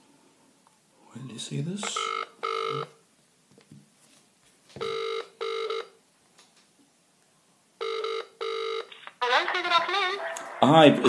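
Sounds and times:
telephone ringback tone: 1.8 - 3.0, 4.8 - 6.0, 7.8 - 8.9.

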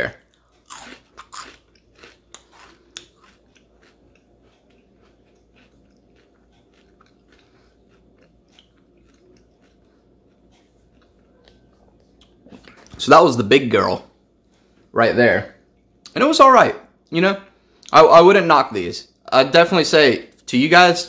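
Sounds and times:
person chewing crunchy food: 0.0 - 13.0.

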